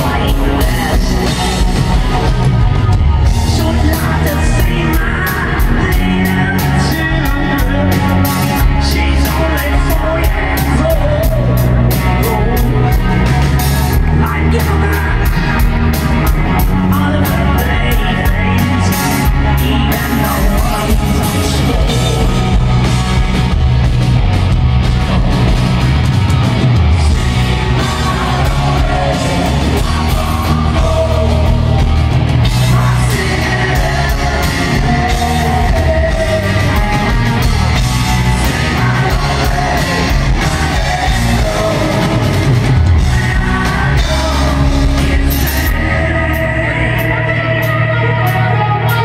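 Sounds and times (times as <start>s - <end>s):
live rock band playing: 0.0s - 49.0s
man singing through pa: 27.6s - 37.6s, 38.2s - 49.0s.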